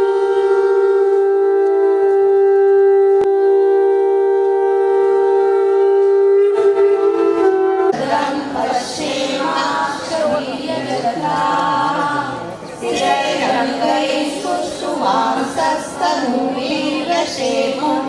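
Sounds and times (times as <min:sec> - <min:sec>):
conch shells blaring: 0:00.0 - 0:08.0
large crowd voices: 0:00.0 - 0:18.0.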